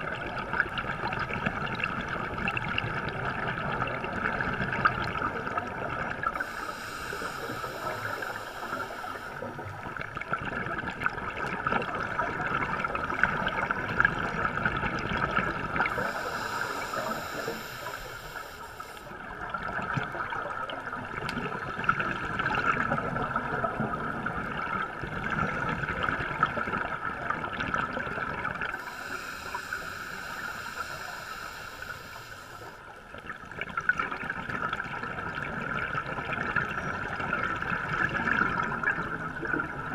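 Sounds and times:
underwater exhaust bubbles: 0.0s - 39.9s
steady muffled hiss: 6.3s - 9.9s, 15.7s - 19.3s, 28.7s - 33.0s.

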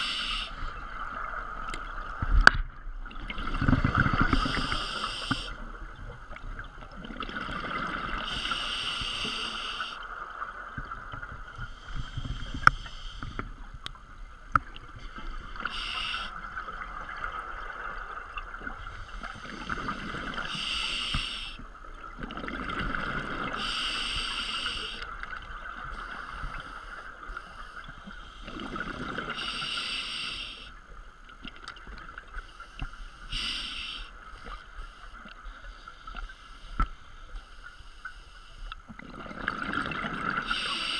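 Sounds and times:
regulator breathing underwater: 0.0s - 0.7s, 4.2s - 5.6s, 8.1s - 10.0s, 15.6s - 16.5s, 19.0s - 21.6s, 23.4s - 25.2s, 25.9s - 30.8s, 32.4s - 35.2s, 40.4s - 40.9s.

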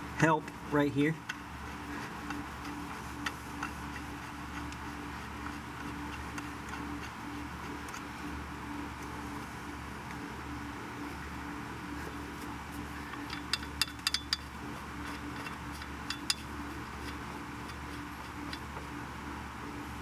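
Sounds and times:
steady low hum: 0.0s - 20.0s
sharp metal clicks and clinks: 13.1s - 17.1s.

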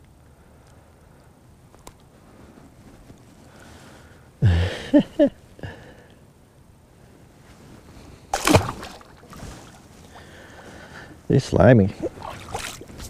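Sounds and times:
fish splashing into water: 8.4s - 9.8s, 12.0s - 12.9s.

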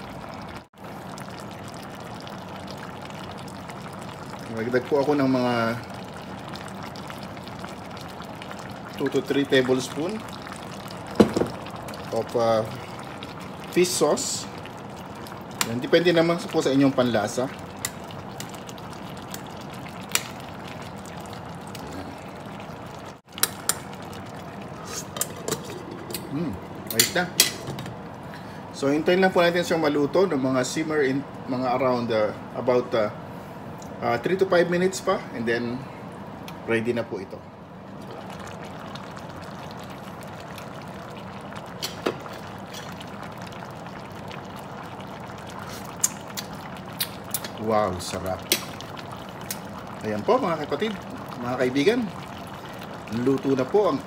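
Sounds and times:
pot simmering and bubbling: 0.0s - 54.0s.

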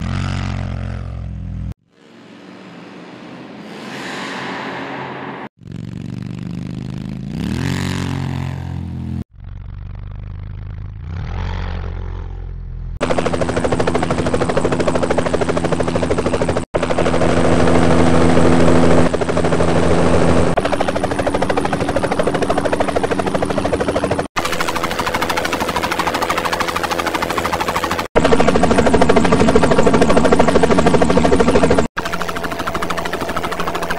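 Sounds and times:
motorcycle engine revving: 0.0s - 3.7s, 5.5s - 21.8s
helicopter rotor chopping: 13.0s - 33.9s.

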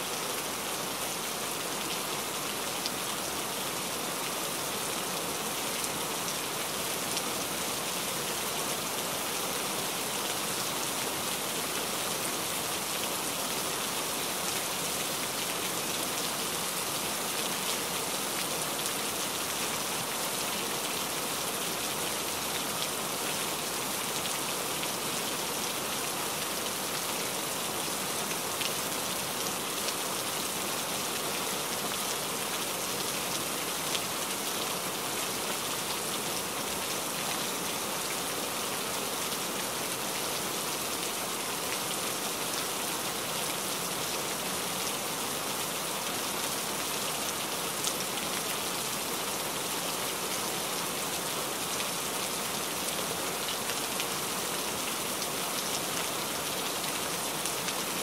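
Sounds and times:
steady rain: 0.0s - 58.0s.

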